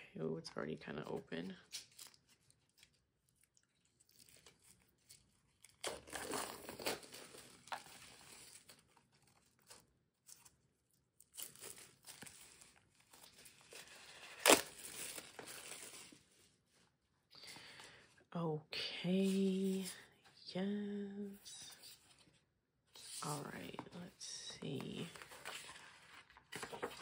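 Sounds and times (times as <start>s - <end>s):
plastic wrap crinkling and tearing: 1.6s - 16.4s.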